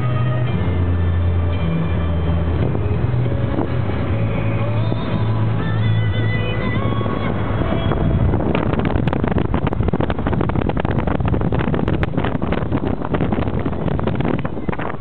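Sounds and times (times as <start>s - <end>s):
music playing: 0.0s - 10.7s
car road and engine rumble: 0.0s - 15.0s
wind buffeting microphone: 0.0s - 15.0s.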